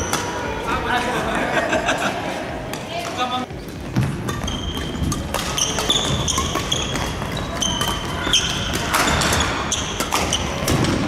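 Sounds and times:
rackets hitting shuttlecock: 0:00.0 - 0:00.4, 0:02.7 - 0:11.0
shoes squeaking on court: 0:02.8 - 0:11.0.

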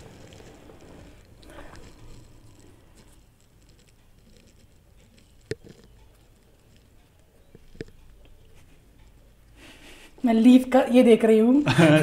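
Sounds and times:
small ticks: 0:00.0 - 0:09.6.

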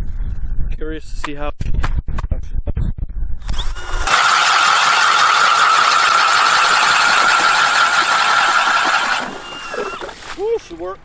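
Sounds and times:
drill auger boring through ice: 0:03.5 - 0:10.4.

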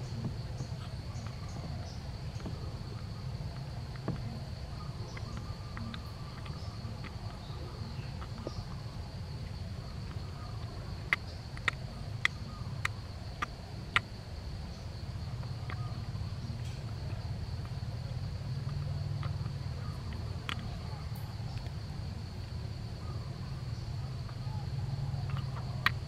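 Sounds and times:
high insect drone: 0:00.0 - 0:26.0
baby gibbon mouth clicks: 0:10.6 - 0:14.1.

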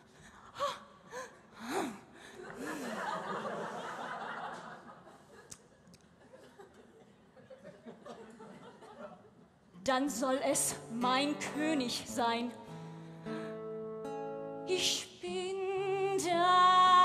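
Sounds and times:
audience laughing: 0:02.4 - 0:05.6, 0:06.2 - 0:09.5.

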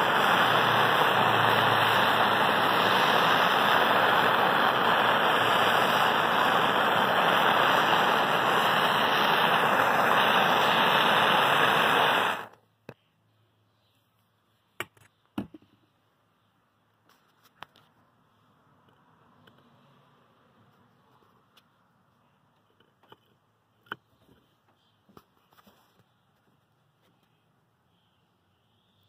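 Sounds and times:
gas torch flame hissing: 0:00.0 - 0:12.6.

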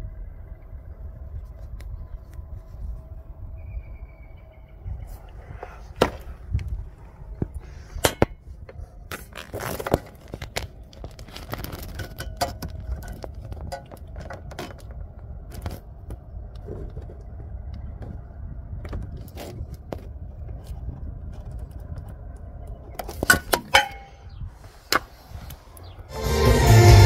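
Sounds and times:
low steady rumble: 0:00.0 - 0:09.1.

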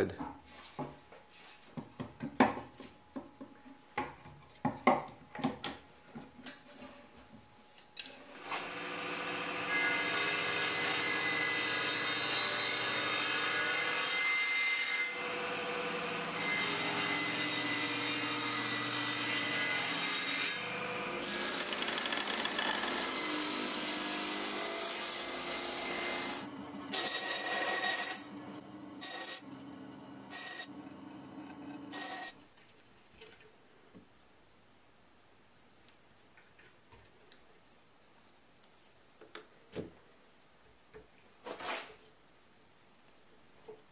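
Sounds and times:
table saw cutting wood: 0:08.4 - 0:32.4
bandsaw cutting: 0:15.0 - 0:28.4, 0:29.0 - 0:29.5, 0:30.3 - 0:30.8, 0:31.5 - 0:32.4.

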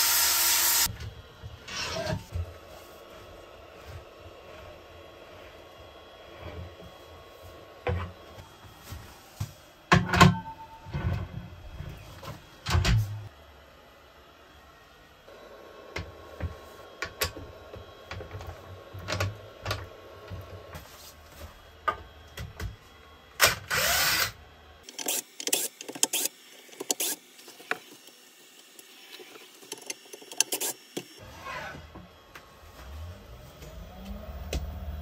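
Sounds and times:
cordless drill running: 0:00.0 - 0:00.9, 0:23.4 - 0:29.0.

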